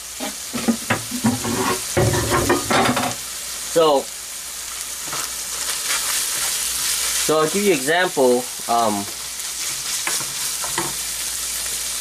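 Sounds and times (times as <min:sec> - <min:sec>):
meat sizzling in a frying pan: 0:00.0 - 0:12.0
utensil scraping a pan: 0:00.2 - 0:03.2.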